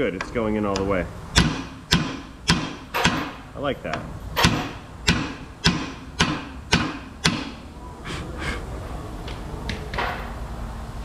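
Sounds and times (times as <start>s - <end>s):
hammer striking metal: 1.4s - 3.4s, 4.4s - 7.6s.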